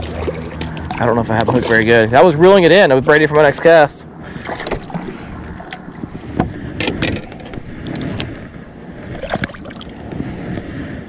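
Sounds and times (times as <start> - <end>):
water noise: 0.0 - 11.0
wind noise: 4.2 - 11.0.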